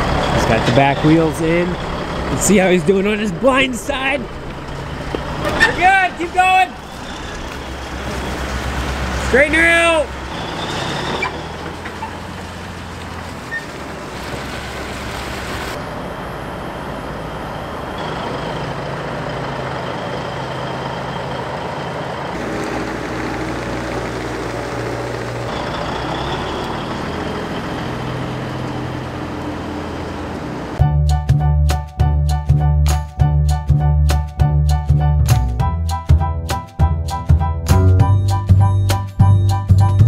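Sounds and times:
diesel truck engine running: 0:00.0 - 0:30.9.

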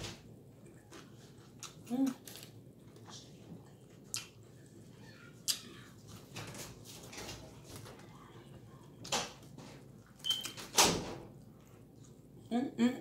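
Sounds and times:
chewing and wet mouth noises: 0:00.6 - 0:06.2.

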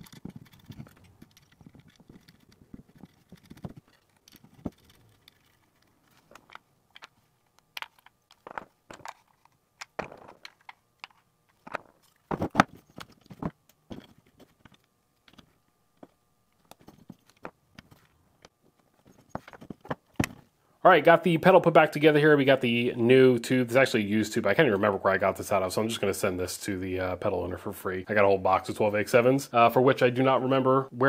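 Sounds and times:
screwdriver working a knob: 0:00.0 - 0:12.2.

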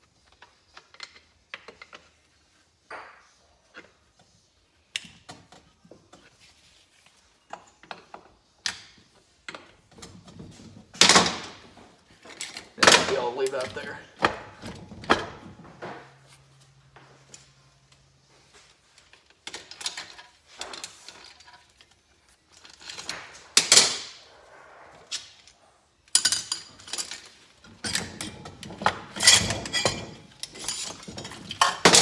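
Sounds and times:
metal clinks and knocks: 0:25.1 - 0:32.0
metal parts clattering: 0:26.1 - 0:32.0.

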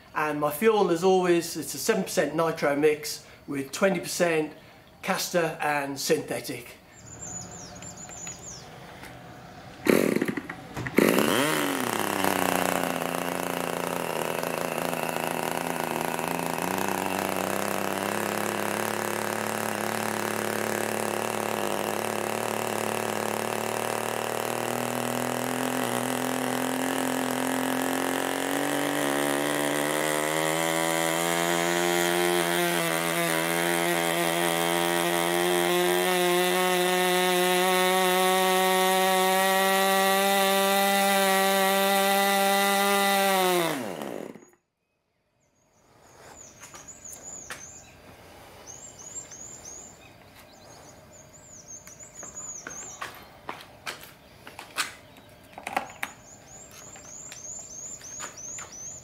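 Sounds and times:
model aircraft engine running: 0:07.4 - 0:35.7.

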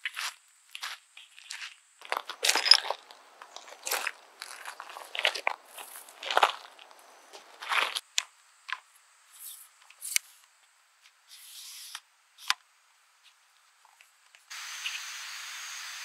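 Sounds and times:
footstep crunching on gravel: 0:00.0 - 0:08.1
riverside ambience hiss: 0:00.0 - 0:16.0
tripod legs sliding: 0:02.1 - 0:08.0.

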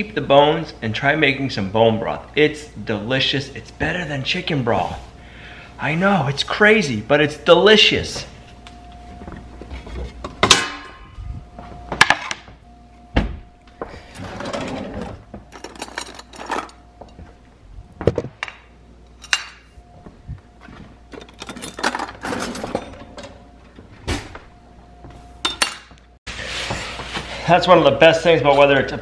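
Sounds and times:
metal utensils set down: 0:15.5 - 0:16.8, 0:19.2 - 0:19.7, 0:21.1 - 0:23.4, 0:25.4 - 0:26.0
ringing metallic clang: 0:19.2 - 0:19.8, 0:25.4 - 0:26.0.

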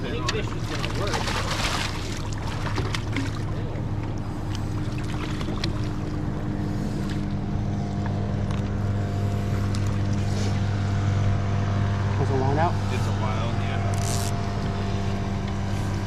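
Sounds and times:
boat motor idling: 0:00.0 - 0:16.0
fish splashing in net: 0:00.7 - 0:03.4.

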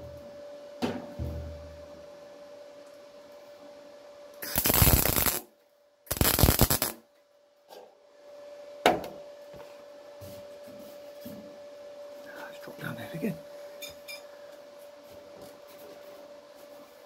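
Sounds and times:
faint steady hum: 0:00.0 - 0:17.0
welder crackling: 0:04.4 - 0:05.5, 0:06.1 - 0:07.0.

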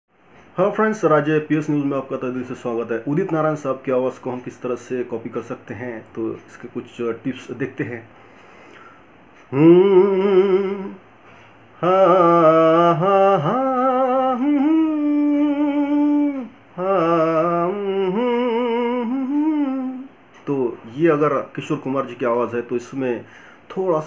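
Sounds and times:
man humming with vibrato: 0:09.4 - 0:11.1, 0:11.8 - 0:20.2.

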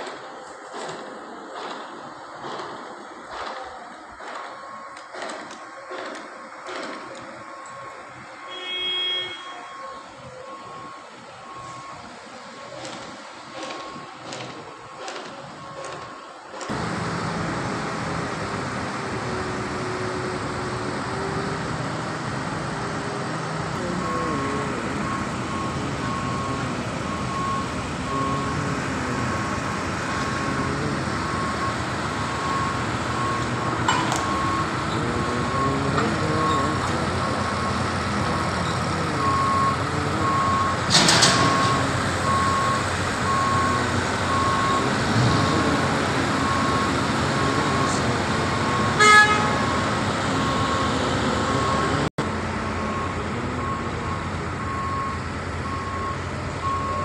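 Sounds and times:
reversing alarm beeping: 0:03.3 - 0:17.9, 0:19.1 - 0:52.1, 0:52.8 - 0:57.0
vehicle engine running: 0:16.7 - 0:57.0
short horn toot: 0:49.0 - 0:49.7.

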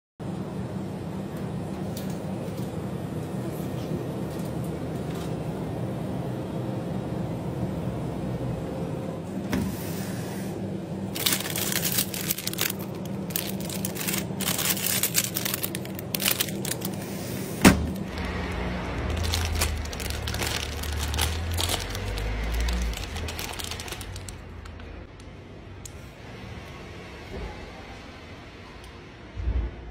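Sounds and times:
freezer hum: 0:00.2 - 0:29.3
low rumbling: 0:10.9 - 0:25.2
plastic wrappers crinkling: 0:11.1 - 0:25.1.

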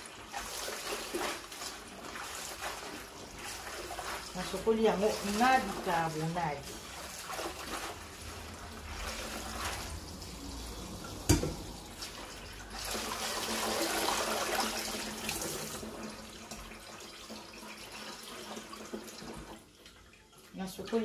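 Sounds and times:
water sloshing and splashing: 0:00.0 - 0:21.0
metal colander clank: 0:11.1 - 0:11.7.

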